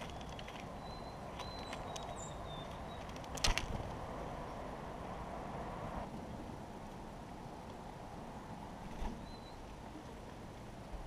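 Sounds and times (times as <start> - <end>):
bird claws clattering clicks: 0.0 - 3.8.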